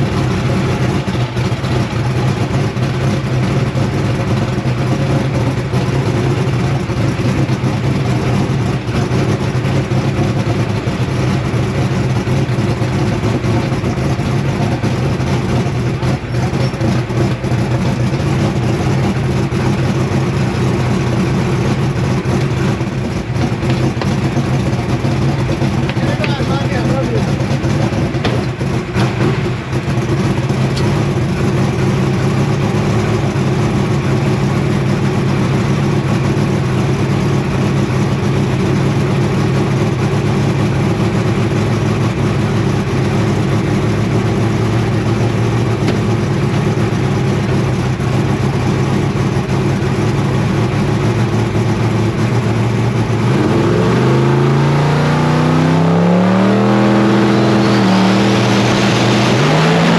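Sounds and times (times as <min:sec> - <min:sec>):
race car engine running: 0:00.0 - 0:59.9.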